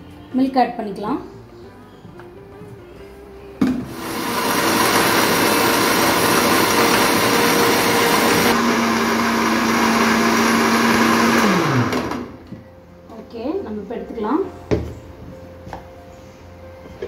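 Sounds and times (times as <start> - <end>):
mixer grinder running: 3.9 - 12.4.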